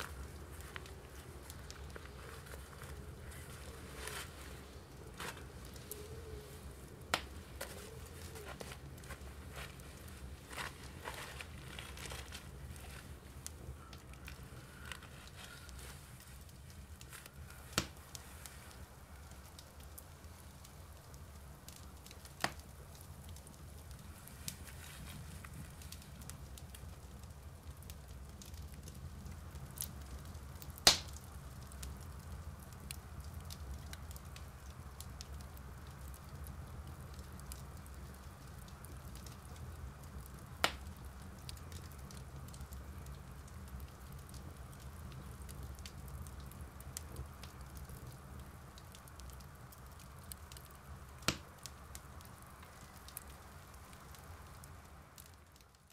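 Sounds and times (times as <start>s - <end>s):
campfire crackling: 0.0s - 55.9s
loud sharp fire pops: 30.8s - 31.2s.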